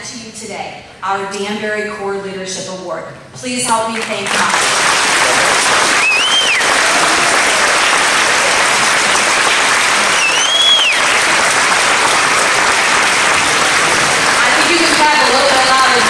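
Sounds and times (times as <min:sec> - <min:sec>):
audience applauding: 0:04.0 - 0:16.0
rising and falling whistles: 0:06.0 - 0:06.7, 0:10.0 - 0:11.2.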